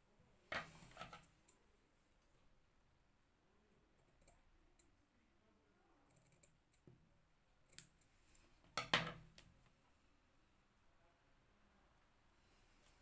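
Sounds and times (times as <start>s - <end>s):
scissors snipping yarn: 7.6s - 8.1s.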